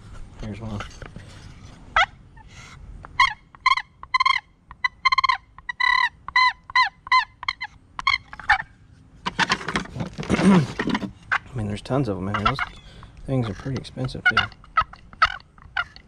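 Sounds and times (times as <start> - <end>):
turkey box call yelps: 1.9 - 8.8, 12.2 - 13.1, 14.0 - 16.0.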